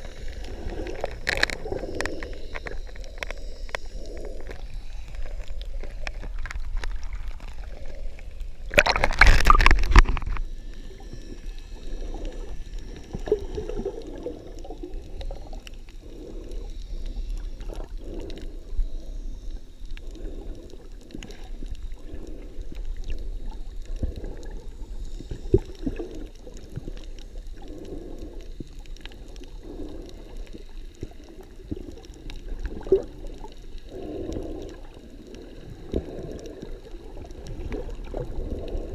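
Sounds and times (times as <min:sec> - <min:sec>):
muffled underwater gurgling: 0:00.0 - 0:38.9.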